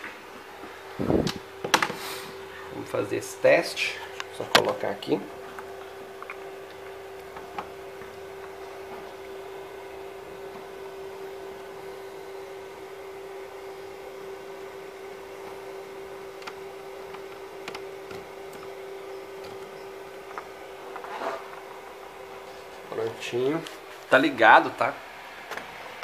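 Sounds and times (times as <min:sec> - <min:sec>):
steady electrical hum: 0:00.0 - 0:26.0.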